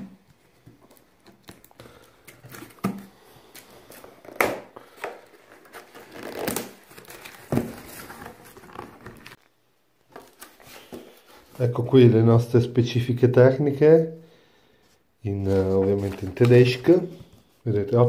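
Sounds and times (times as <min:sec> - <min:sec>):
cardboard rustling and scraping: 0:05.2 - 0:09.4.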